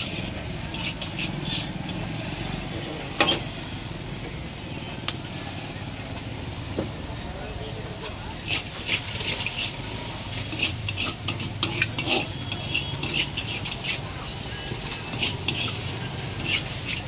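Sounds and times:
metal spatula scraping a wok: 0.0 - 2.2, 3.1 - 3.6, 8.0 - 17.0
noodles sizzling: 0.0 - 17.0.

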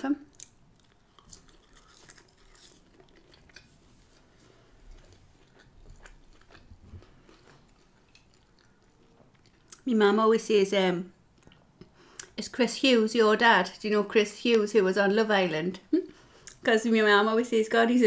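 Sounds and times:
chewing fries: 0.2 - 9.9.

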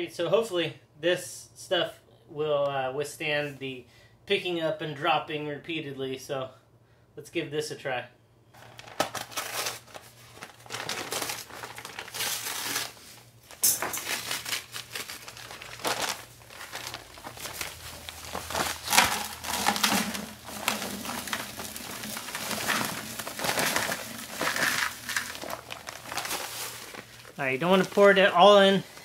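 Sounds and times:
paper sack crinkling and rustling: 8.6 - 29.0
dry mix pouring into plastic bucket: 15.4 - 28.2.

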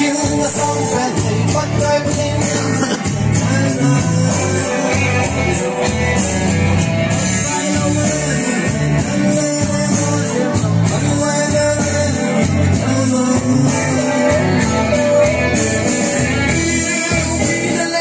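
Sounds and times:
electronic keyboard with beat: 0.0 - 18.0
man singing into microphone: 0.0 - 18.0.

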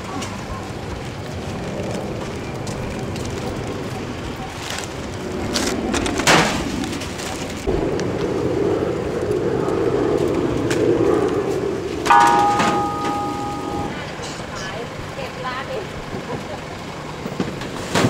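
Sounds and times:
car passing: 5.2 - 14.3
ringing tone of several pitches: 12.1 - 14.0.

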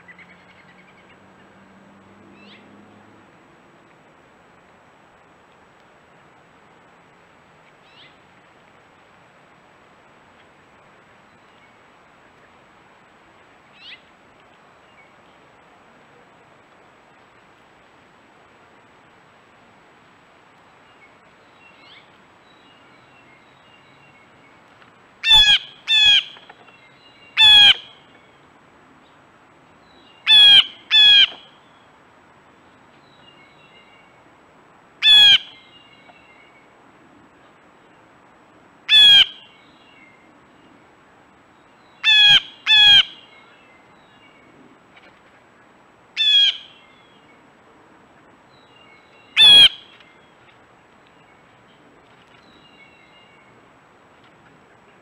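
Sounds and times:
blue jay calling: 25.2 - 28.1, 30.0 - 31.8, 35.0 - 36.0, 38.9 - 39.9, 41.8 - 43.7, 46.2 - 47.2, 48.6 - 50.3.

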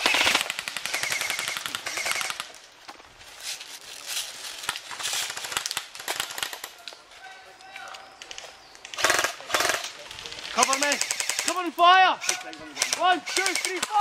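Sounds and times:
airsoft guns firing bursts: 0.0 - 2.6, 8.9 - 14.0.

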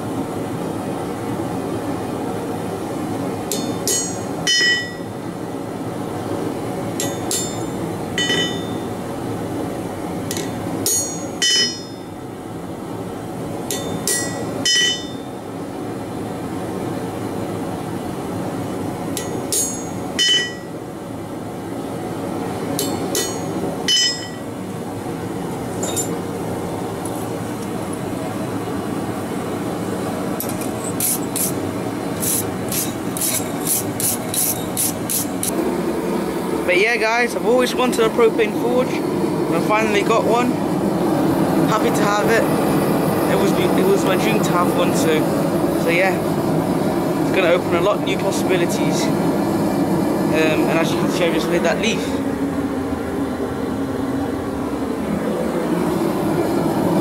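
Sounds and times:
forge burner rushing: 0.0 - 57.0
hammer striking chisel on metal: 3.5 - 5.0, 7.0 - 8.8, 10.3 - 12.0, 13.7 - 15.2, 19.2 - 20.7, 22.8 - 24.4.

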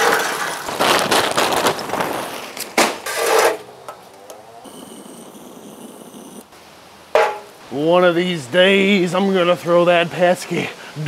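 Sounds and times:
charcoal clattering into metal starter: 0.0 - 4.0
sharp knock: 7.2 - 7.5.

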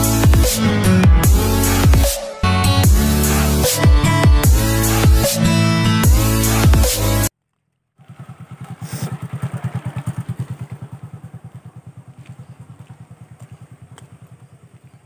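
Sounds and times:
small engine chugging: 7.9 - 15.0.

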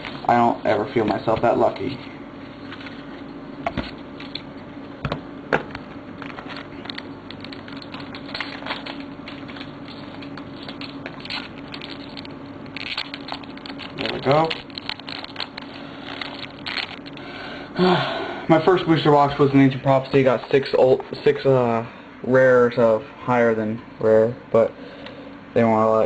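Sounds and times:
foil wrapper crinkling: 6.3 - 17.3
wrapper rustling: 6.4 - 17.2.

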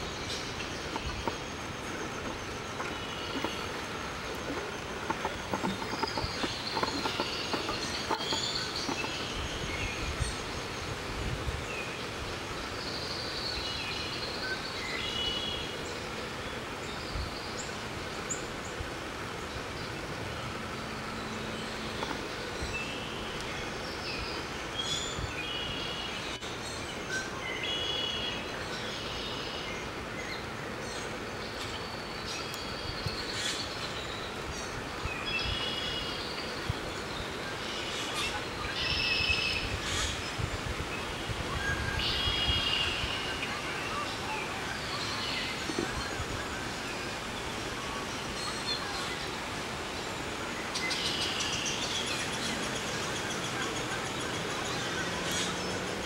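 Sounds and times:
steady rushing noise: 0.0 - 12.6.

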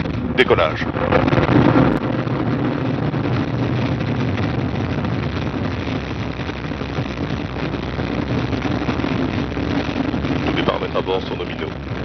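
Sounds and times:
rocket engine rumble: 0.0 - 12.0.

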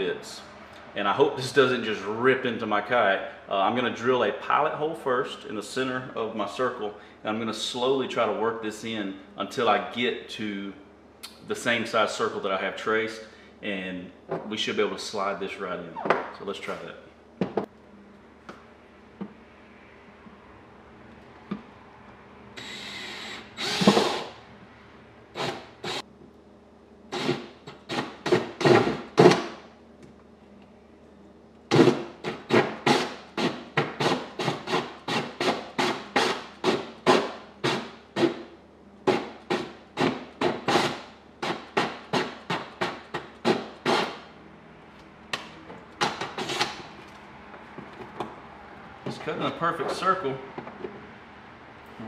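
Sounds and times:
cordless drill boring plastic: 22.6 - 24.3, 25.4 - 26.0, 27.1 - 29.3.

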